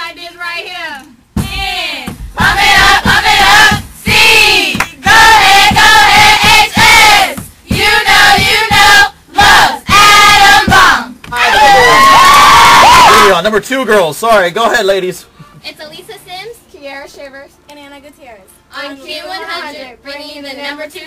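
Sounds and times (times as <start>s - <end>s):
cheerleaders shouting a cheer: 1.5s - 13.2s.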